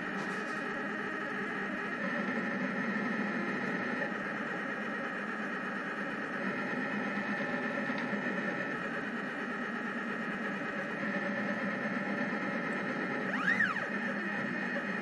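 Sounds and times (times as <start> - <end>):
motor whine rising and falling: 10.8 - 15.0
stepper motors whirring: 12.8 - 15.0.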